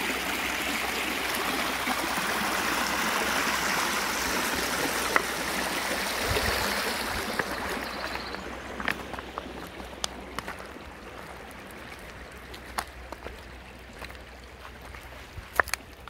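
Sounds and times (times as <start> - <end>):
creek water running over stones: 0.0 - 16.0
footsteps on loose rocks: 7.4 - 16.0.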